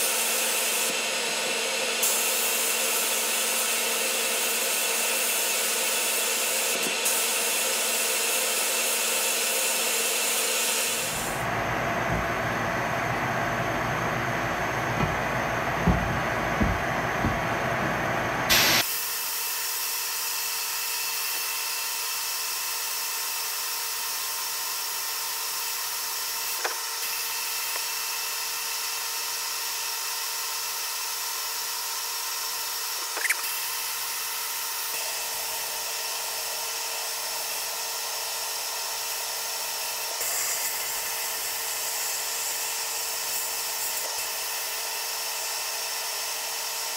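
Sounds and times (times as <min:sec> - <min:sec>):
knocks of metal panel handled: 0:15.8 - 0:17.6
abrasive blast hissing: 0:18.5 - 0:18.8.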